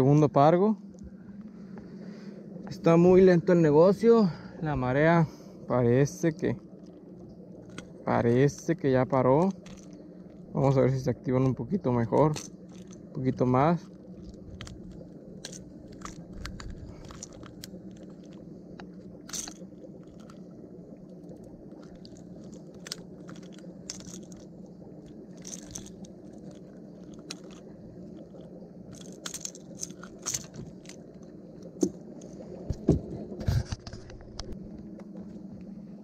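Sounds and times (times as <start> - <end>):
steady low hum: 0.0 - 36.0
pliers and metal hooks clicking: 22.0 - 24.5, 25.3 - 27.6, 28.9 - 31.0.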